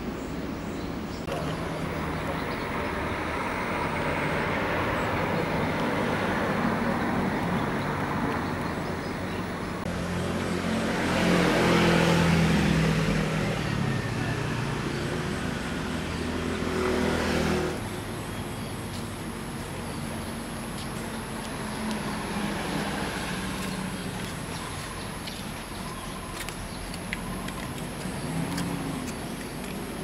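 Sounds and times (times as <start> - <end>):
vehicle engine hum: 0.0 - 30.0
loud engine drone: 1.3 - 18.5.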